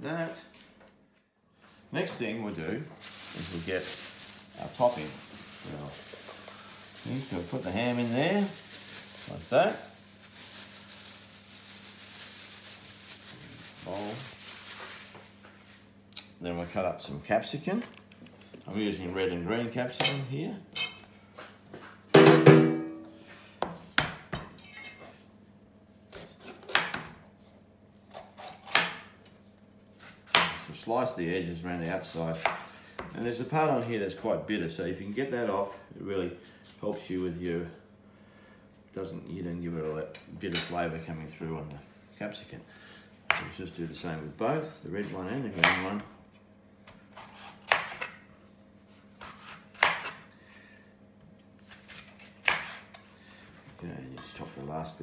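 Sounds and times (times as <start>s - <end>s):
knife slicing pepper: 46.8s - 48.1s, 49.2s - 50.2s, 51.6s - 53.0s.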